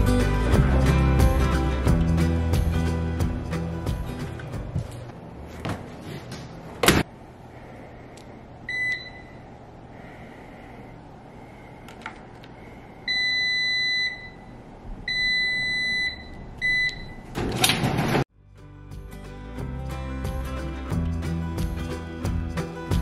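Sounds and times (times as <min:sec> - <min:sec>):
faint hum: 0:07.1 - 0:17.2.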